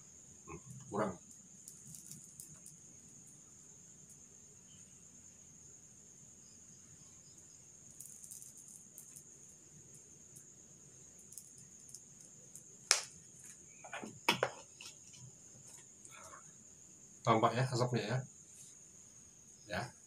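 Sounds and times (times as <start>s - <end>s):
crickets trilling: 0.0s - 20.0s.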